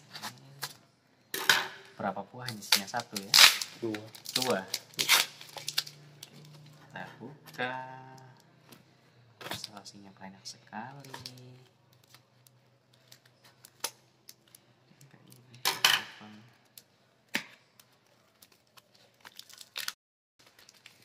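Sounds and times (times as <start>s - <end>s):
tape being torn off: 2.5s - 6.0s
clicks and crinkles: 10.9s - 21.0s.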